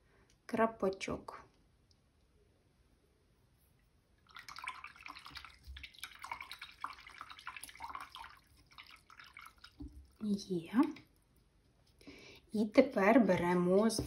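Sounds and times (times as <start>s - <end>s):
brush splashing in water: 4.2s - 12.0s
brush tapping against jar: 12.6s - 14.0s.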